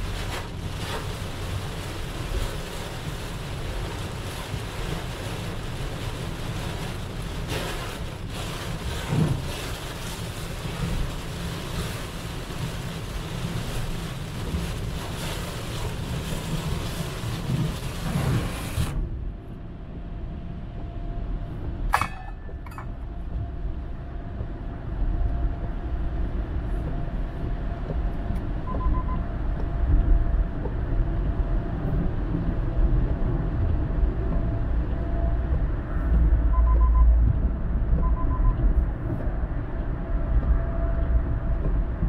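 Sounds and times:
heavy rain on car windscreen: 0.0 - 19.0
tyres on flooded road: 0.0 - 19.0
car engine rumble: 0.0 - 42.0.

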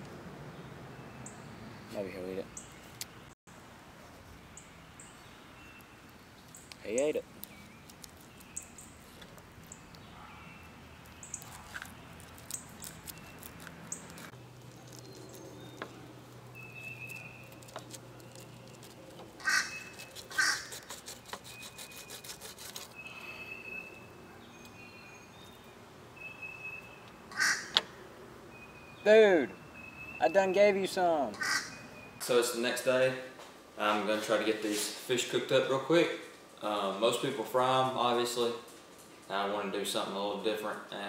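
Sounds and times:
crow cawing: 19.4 - 20.7, 27.3 - 27.8, 31.4 - 31.8
knife scraping cutting board: 19.7 - 23.0.

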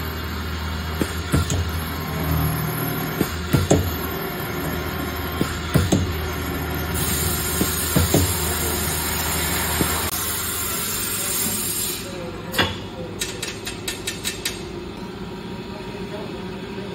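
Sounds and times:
low motor hum: 0.0 - 10.4
drilling machine cutting steel: 0.0 - 12.0.

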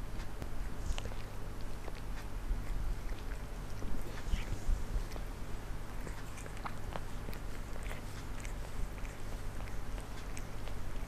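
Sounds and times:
cat licking its fur: 0.7 - 11.0.

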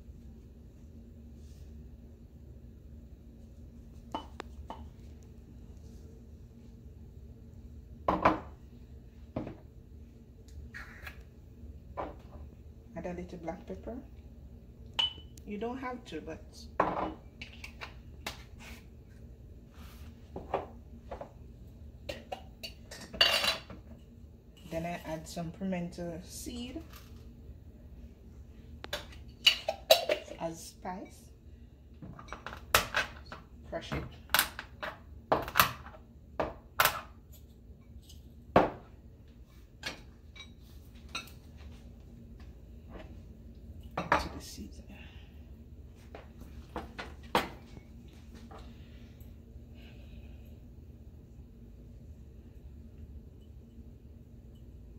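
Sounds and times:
glass knocking and clinking: 15.0 - 15.3.

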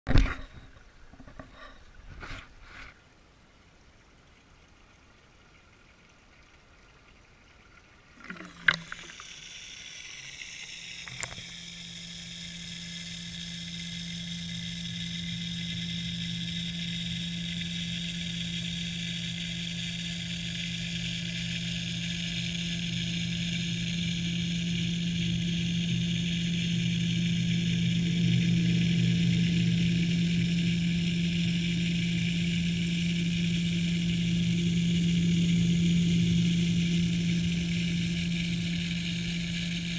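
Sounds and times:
low underwater hum: 0.1 - 39.9
high whine: 8.3 - 39.9.

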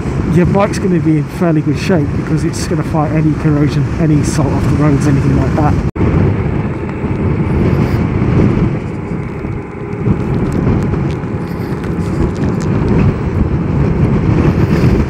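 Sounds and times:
motorcycle road noise: 0.0 - 15.0
wind buffeting microphone: 0.0 - 15.0.

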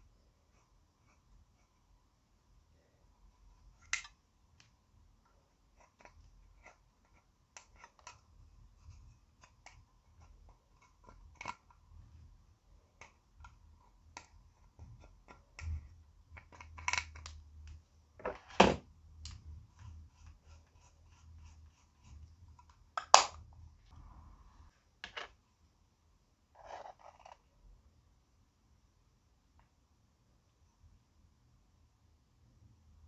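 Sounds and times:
stick scraping powder compact: 2.8 - 17.9, 19.1 - 23.2, 26.5 - 27.6.

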